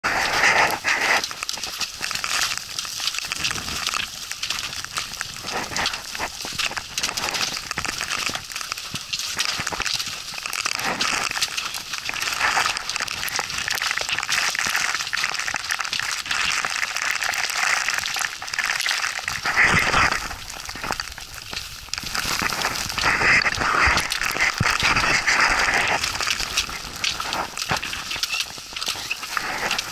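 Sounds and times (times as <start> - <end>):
trekking poles clicking and scraping: 0.0 - 13.4, 19.3 - 29.9
wind noise on microphone: 19.2 - 29.9
footsteps crunching on snow: 19.4 - 29.9
rush of noise: 22.1 - 27.5.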